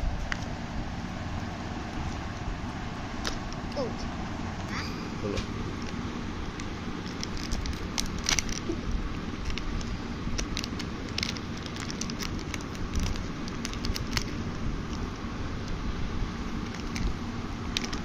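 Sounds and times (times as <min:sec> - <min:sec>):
foil wrapper crinkling: 0:05.8 - 0:15.3, 0:16.5 - 0:18.0.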